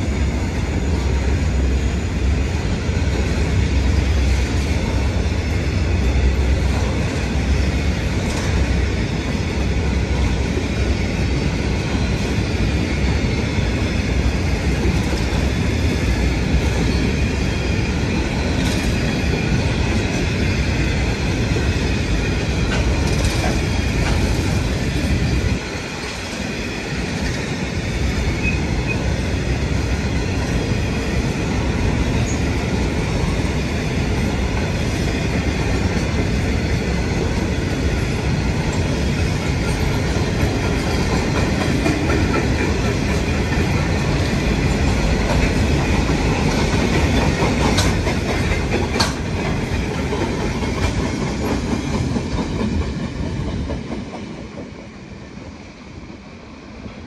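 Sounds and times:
clickety-clack over rail joints: 0:00.0 - 0:55.5
train wheels rumbling on track: 0:00.0 - 0:57.0.

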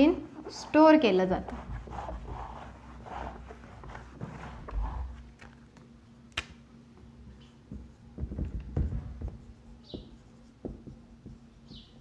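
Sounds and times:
knocks and taps on whiteboard: 0:07.7 - 0:11.4.

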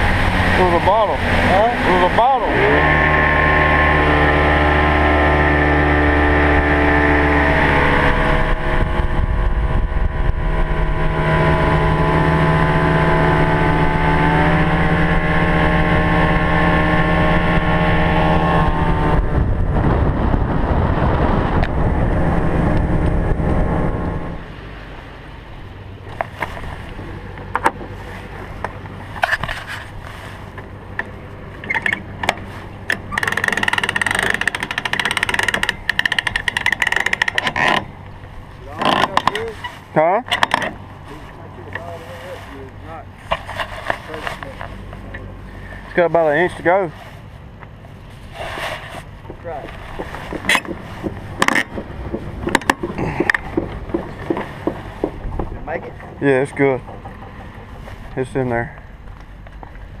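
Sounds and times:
outboard motor running at speed: 0:00.0 - 1:00.0
hand winch clicks and knocks: 0:31.0 - 0:37.9, 0:40.3 - 0:40.8, 0:50.0 - 0:56.2.

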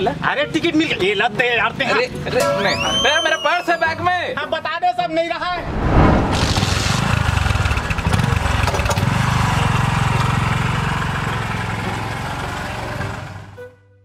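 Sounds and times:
motorcycle engine pulling away: 0:06.4 - 0:13.6.

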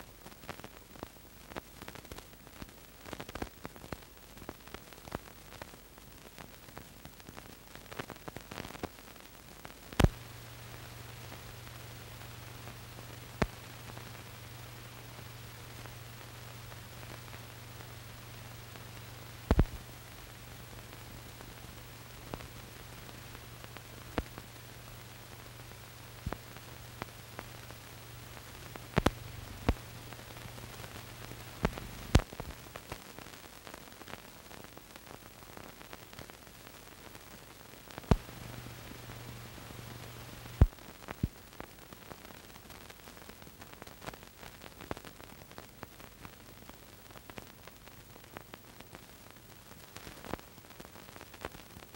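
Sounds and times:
film soundtrack hiss: 0:00.0 - 0:51.9
sharp clicks and pops: 0:09.6 - 0:33.1, 0:37.9 - 0:42.2.

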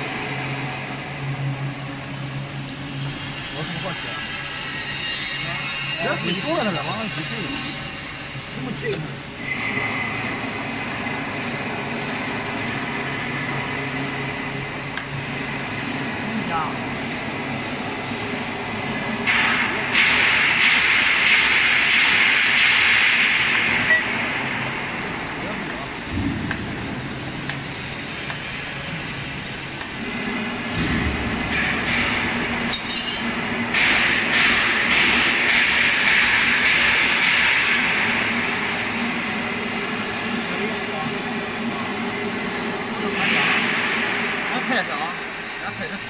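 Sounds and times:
machinery humming: 0:00.0 - 0:46.0
steel tools clinking on metal: 0:06.0 - 0:07.6, 0:32.7 - 0:33.3.

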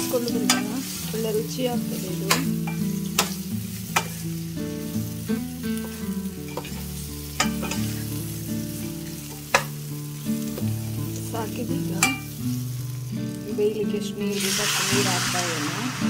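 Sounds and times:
food sizzling in oil: 0:00.0 - 0:16.0
soft background music: 0:00.0 - 0:16.0
ladle clinking against pan: 0:12.0 - 0:12.3.

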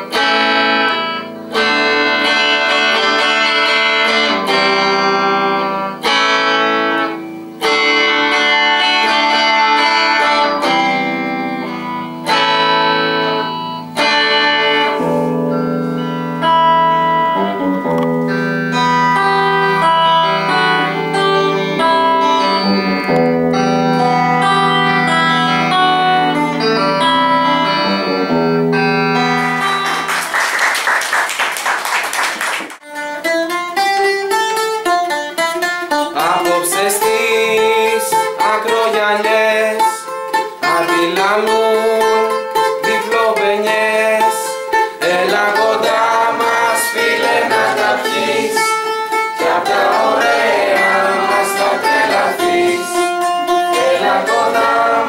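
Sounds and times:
bouzouki melody: 0:00.0 - 0:30.3, 0:32.8 - 0:55.0
electric guitar held notes: 0:00.0 - 0:30.5
young voices singing: 0:36.2 - 0:40.0, 0:42.6 - 0:55.0.

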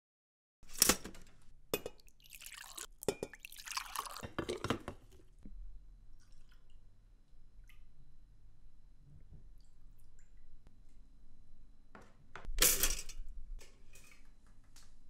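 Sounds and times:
liquid being poured: 0:01.9 - 0:04.7.

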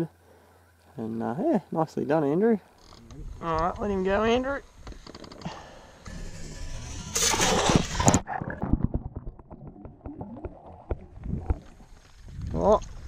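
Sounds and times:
sharp underwater clicks and knocks: 0:07.2 - 0:13.0
water splashing: 0:08.0 - 0:13.0.

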